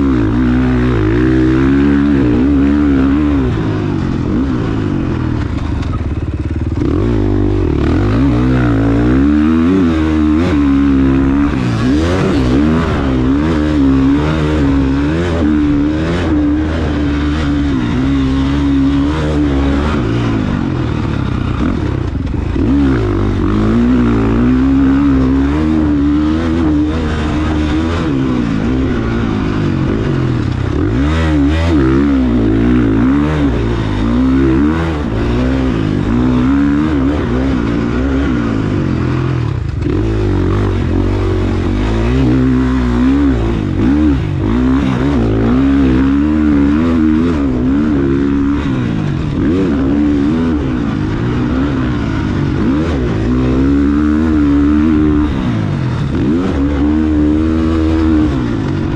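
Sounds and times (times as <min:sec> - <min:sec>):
dirt bike engine revving: 0:00.0 - 0:58.9.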